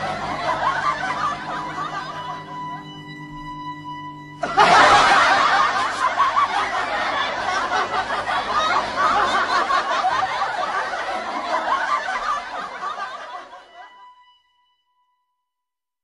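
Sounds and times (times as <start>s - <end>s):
laughter: 0.0s - 2.9s, 4.4s - 14.0s.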